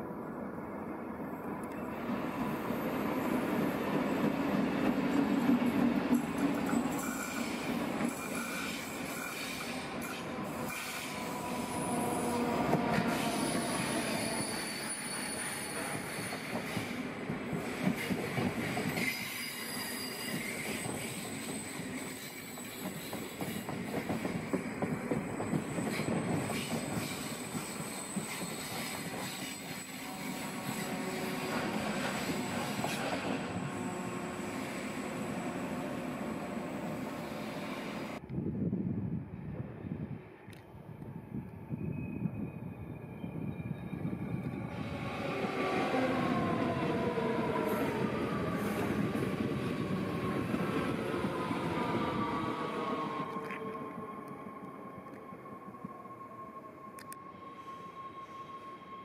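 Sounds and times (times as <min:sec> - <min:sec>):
diesel locomotive passing: 0:01.0 - 0:18.9, 0:22.9 - 0:38.7, 0:39.5 - 0:59.0
train wheels rumbling on rails: 0:03.5 - 0:36.3
high-pitched wheel squeal: 0:13.0 - 0:16.7, 0:18.9 - 0:23.7.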